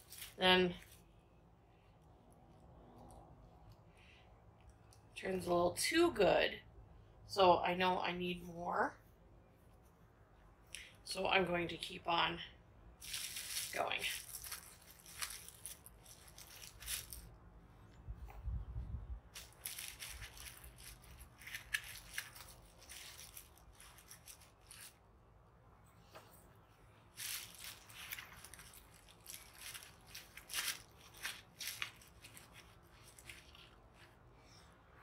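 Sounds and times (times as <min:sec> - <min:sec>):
plastic bag crinkling: 0:00.0 - 0:01.1, 0:13.0 - 0:17.4, 0:19.3 - 0:25.0, 0:27.1 - 0:34.1.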